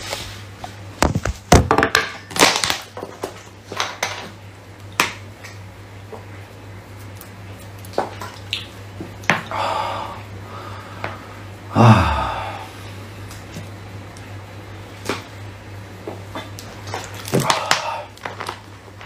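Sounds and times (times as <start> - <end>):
steady low hum: 4.4 - 19.0.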